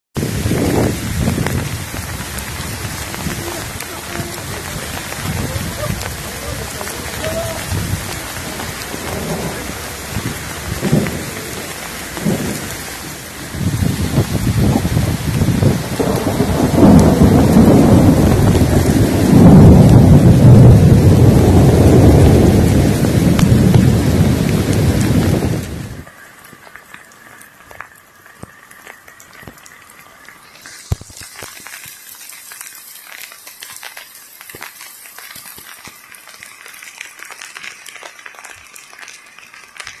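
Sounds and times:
faint rain patter: 0.2s - 40.0s
heavy rain: 0.2s - 40.0s
drips and ticks: 1.2s - 12.9s, 26.0s - 40.0s.

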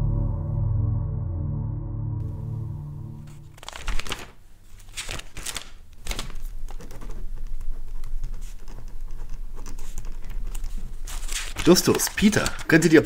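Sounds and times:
low steady hum: 0.0s - 4.8s.

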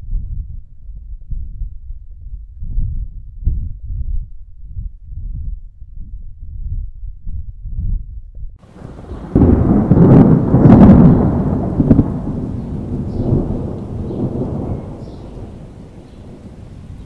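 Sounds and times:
thunder clap and rumble: 8.6s - 17.0s.

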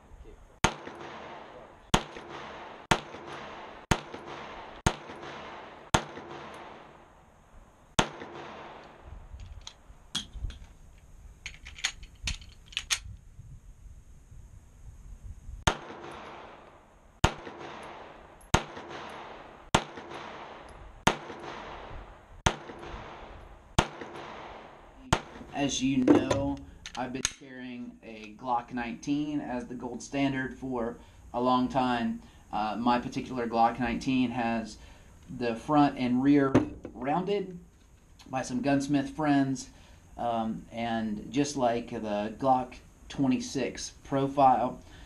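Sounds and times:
pistol shots: 0.6s - 7.2s, 8.0s - 9.1s, 15.7s - 25.6s
pistol handling clicks and knocks: 8.2s - 10.8s, 11.4s - 13.1s, 25.2s - 27.4s, 36.6s - 37.0s.

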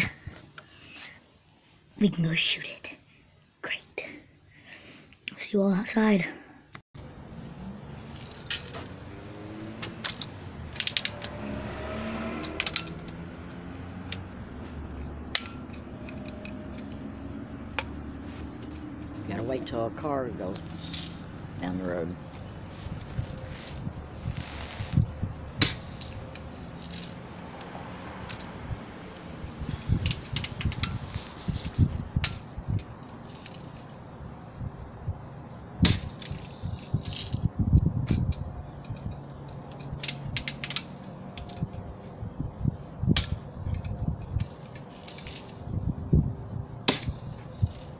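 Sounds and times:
bb gun metallic clicks and ratcheting: 10.0s - 11.4s, 12.4s - 14.3s, 15.3s - 17.0s, 38.1s - 41.8s.

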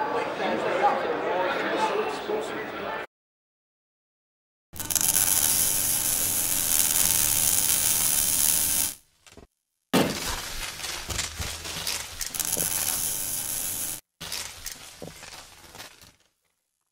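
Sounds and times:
bright hiss: 4.8s - 9.0s, 12.3s - 14.0s
dense crackling and clicking: 4.8s - 9.0s, 10.3s - 16.3s.

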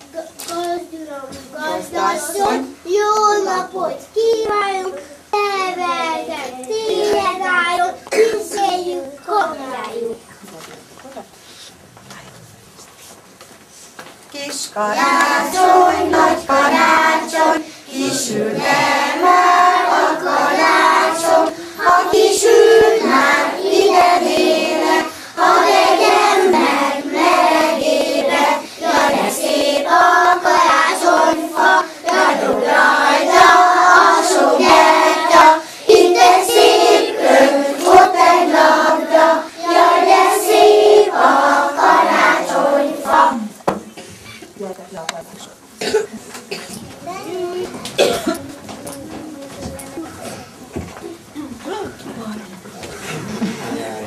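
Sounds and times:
children singing in unison: 14.9s - 43.5s.

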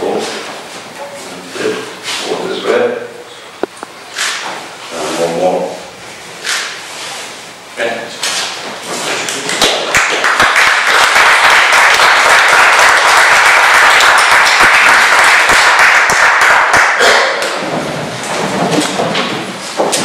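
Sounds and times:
crowd applauding: 9.3s - 17.6s.

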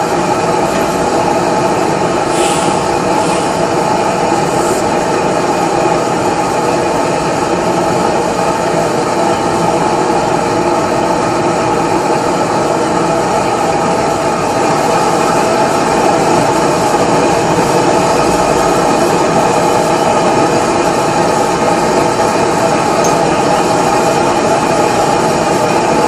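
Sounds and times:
gas blowtorch burning: 0.0s - 26.0s.

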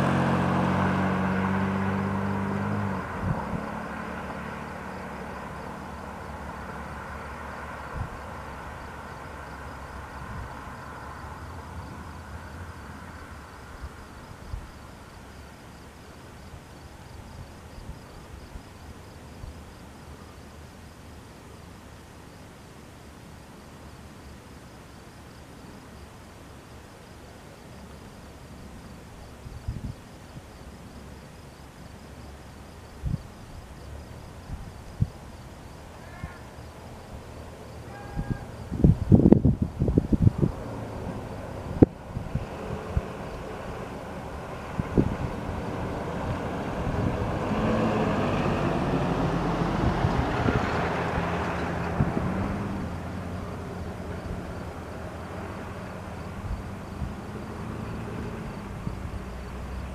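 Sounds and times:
insects chirping: 0.1s - 59.9s
distant light plane engine drone: 30.0s - 59.9s.

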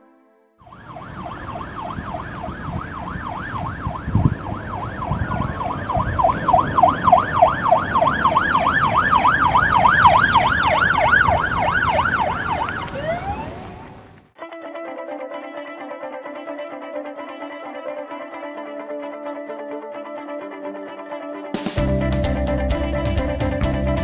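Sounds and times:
ambulance siren yelping: 0.6s - 21.2s
engine and road rumble: 0.7s - 14.4s.

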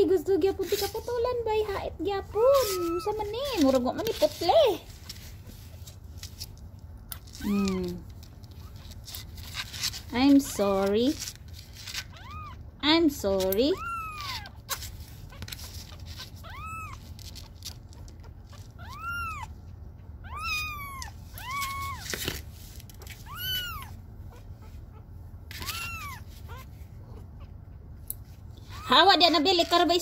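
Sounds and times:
kitten mewing: 2.2s - 3.8s, 7.1s - 8.1s, 13.7s - 17.0s, 18.2s - 19.5s, 20.2s - 22.2s, 23.0s - 27.6s.

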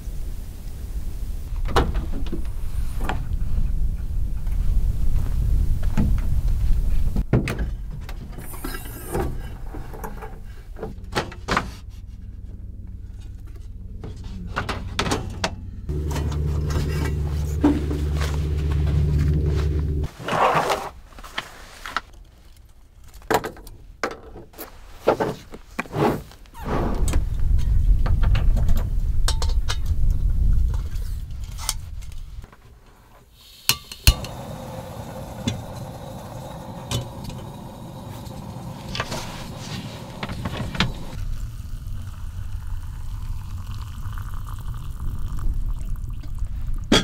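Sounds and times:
low rumble: 0.0s - 7.2s, 12.0s - 20.1s, 26.6s - 32.4s, 34.2s - 47.0s
gas burner hissing: 33.4s - 46.1s
gas stove igniter click: 33.7s - 38.8s
camp cookware clinking: 33.7s - 41.2s
water pouring from kettle: 34.1s - 46.9s.

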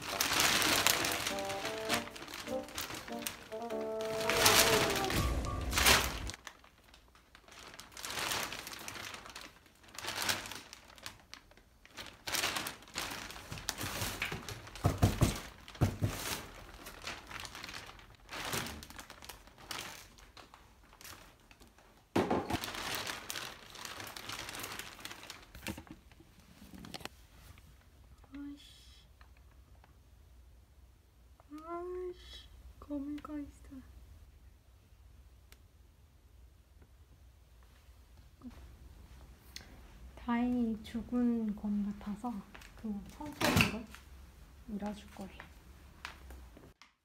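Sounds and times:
plastic bags crinkling: 0.0s - 27.0s, 42.0s - 44.1s.

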